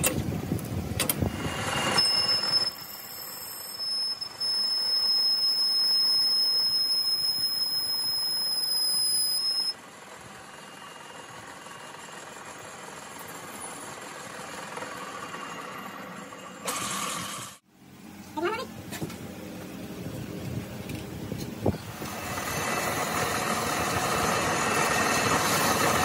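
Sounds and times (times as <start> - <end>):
cutting tool squealing: 1.3 - 9.8
lathe humming: 21.9 - 26.0.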